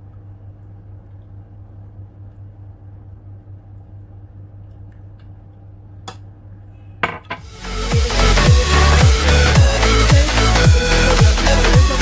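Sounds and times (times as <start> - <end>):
low electrical hum: 0.0 - 7.7.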